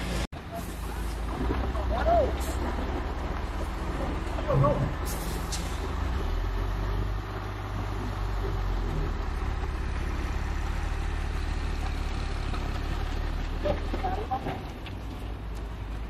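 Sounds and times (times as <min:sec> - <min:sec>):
truck engine rumbling: 0:00.0 - 0:16.0.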